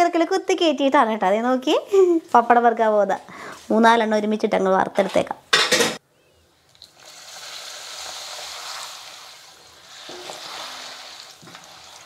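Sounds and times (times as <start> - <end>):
hot oil sizzling: 6.8 - 12.0.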